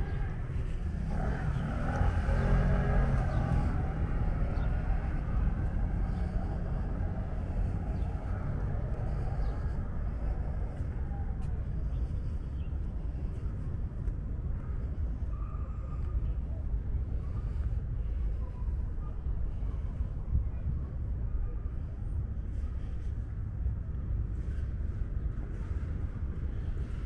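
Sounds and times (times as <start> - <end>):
road traffic rumble: 0.0 - 27.0.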